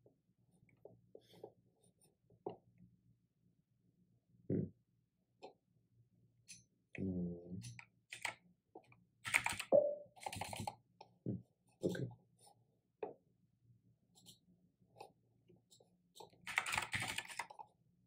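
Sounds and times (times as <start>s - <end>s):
keyboard and mouse clicks: 9.3s - 10.7s.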